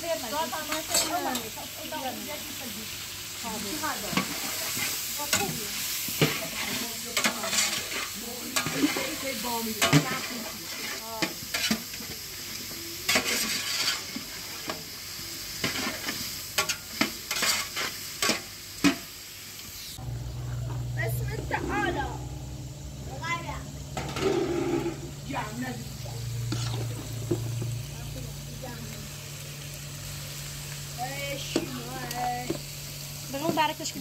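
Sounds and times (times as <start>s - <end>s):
hot oil sizzling: 0.0s - 34.0s
metal ladle scraping a pot: 13.1s - 14.2s, 15.7s - 18.4s, 24.0s - 25.2s, 26.4s - 27.5s.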